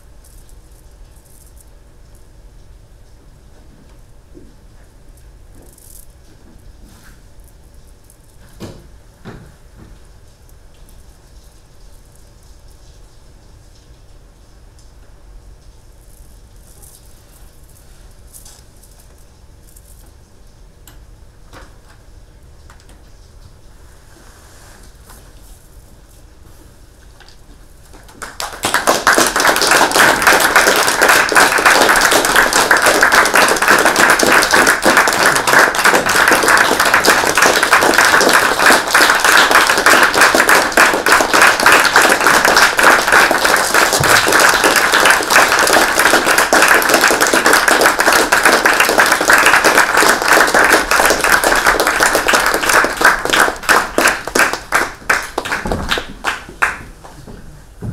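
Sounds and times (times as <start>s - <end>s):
audience applauding: 28.0s - 57.2s.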